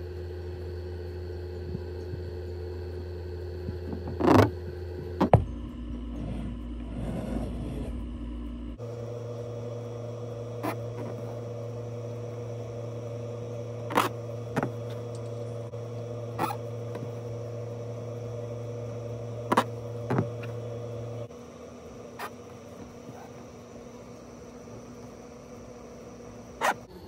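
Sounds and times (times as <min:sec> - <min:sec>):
low electrical hum: 0:00.0 - 0:27.0
needle piercing fabric: 0:03.8 - 0:04.6, 0:10.3 - 0:21.2.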